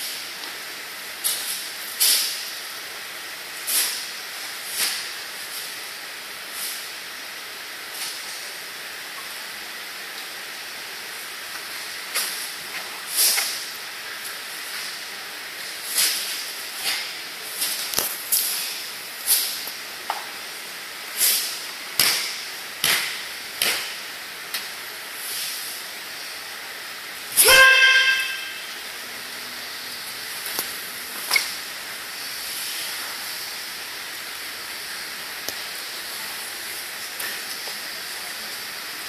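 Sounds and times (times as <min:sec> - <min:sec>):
steady hiss: 0:00.0 - 0:39.0
person shouting: 0:27.4 - 0:28.6.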